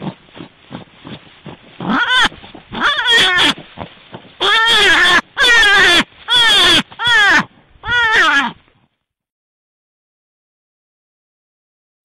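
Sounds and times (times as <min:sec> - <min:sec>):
animal calling: 0:01.8 - 0:08.6.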